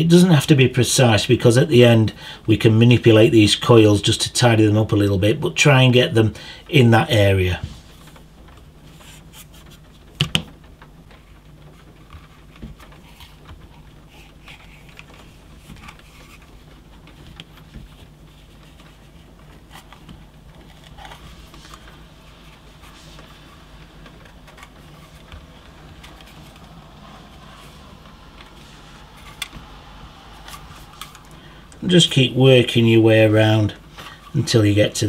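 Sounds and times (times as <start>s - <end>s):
steady low hum: 0.0s - 35.0s
wire clicking and scraping: 7.9s - 32.1s.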